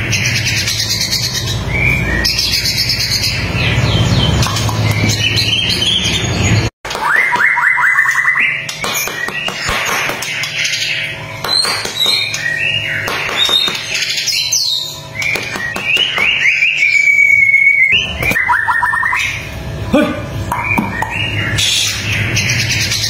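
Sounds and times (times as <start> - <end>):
bird singing whistles and trills: 0.2 - 9.5, 10.8 - 19.4.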